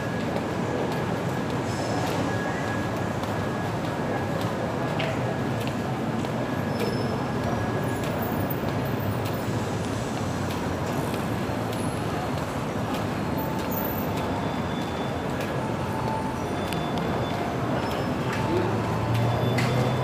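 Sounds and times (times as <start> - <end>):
road noise: 0.0 - 20.0
bus engine hum: 6.9 - 20.0.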